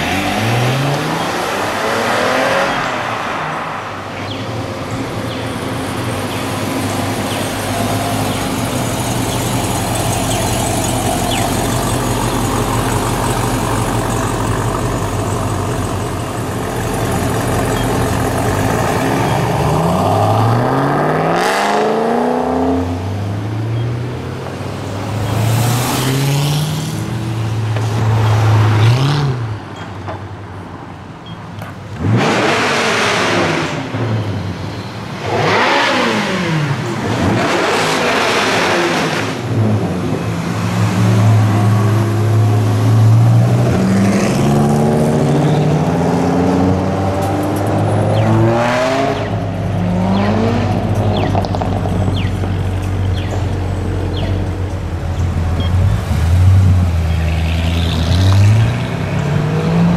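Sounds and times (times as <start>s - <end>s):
car engine revving and accelerating: 0.0s - 3.7s, 17.0s - 23.1s, 25.1s - 27.5s, 32.0s - 34.0s, 35.2s - 52.2s, 55.6s - 59.9s.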